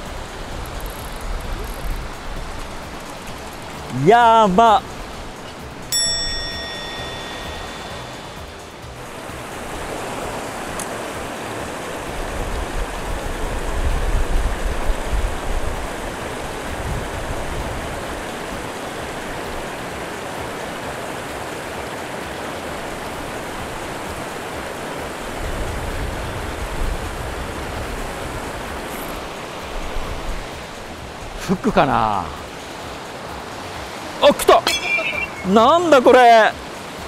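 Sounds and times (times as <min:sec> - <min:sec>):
stream water rushing: 0:00.0 - 0:37.0
wind buffeting microphone: 0:12.2 - 0:18.6.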